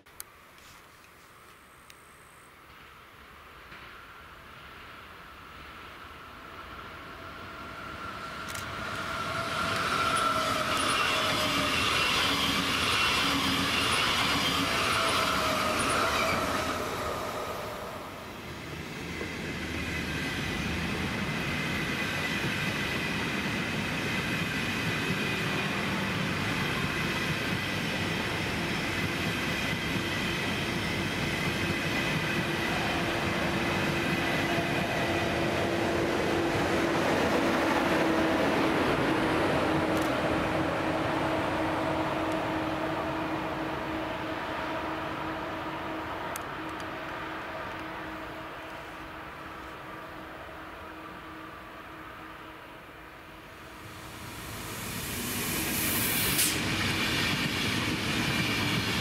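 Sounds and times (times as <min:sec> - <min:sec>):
train rail rolling noise: 0:00.0 - 0:59.0
electric train motor whine: 0:07.2 - 0:18.4.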